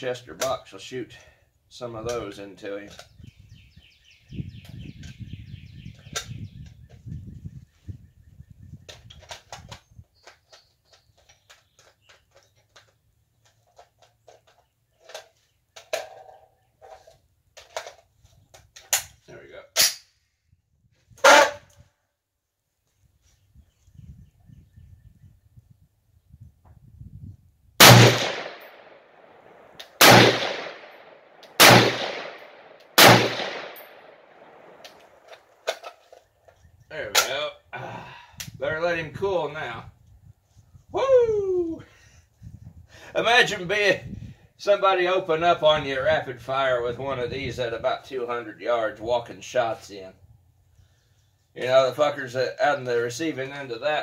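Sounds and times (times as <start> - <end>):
rifle shots echoing: 27.8 - 35.2.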